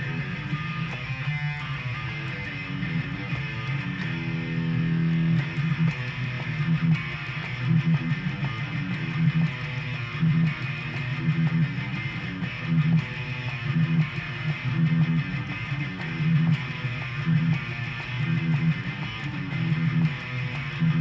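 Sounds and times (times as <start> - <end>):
electric guitar rock riff: 0.0 - 21.0.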